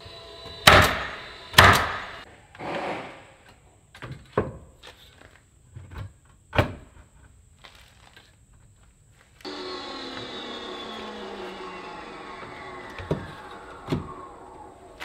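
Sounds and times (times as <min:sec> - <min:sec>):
nail gun bangs: 0:00.6 - 0:03.1.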